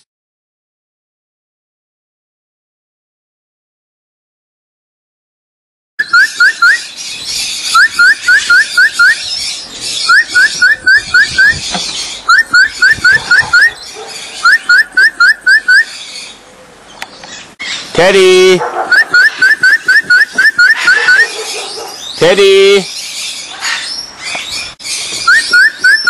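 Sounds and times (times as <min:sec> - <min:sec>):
person whistling short rising whistles: 0:19.0 - 0:21.2.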